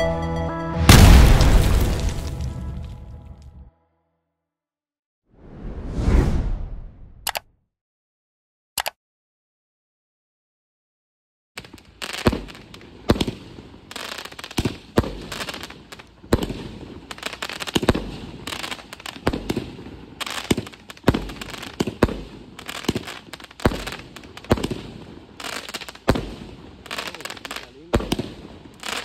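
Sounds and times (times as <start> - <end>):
fireworks cake reports: 26.9 - 28.5.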